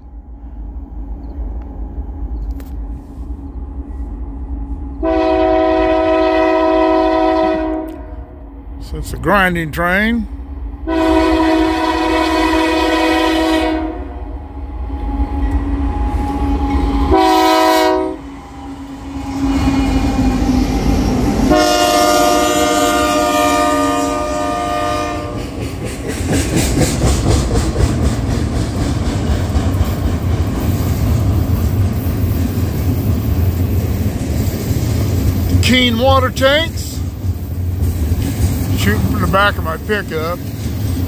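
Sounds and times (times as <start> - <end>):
locomotive air horn blasts: 4.8 - 8.5, 10.8 - 14.3, 16.2 - 18.4, 21.5 - 25.4
locomotives rumbling past: 8.5 - 41.0.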